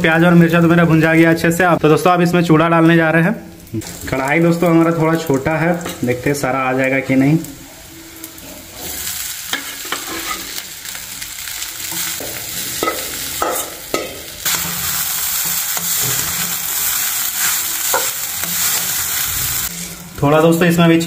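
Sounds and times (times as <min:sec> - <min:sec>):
food sizzling in hot oil: 0:00.0 - 0:21.0
metal spatula scraping pan: 0:08.4 - 0:10.6, 0:11.9 - 0:20.2.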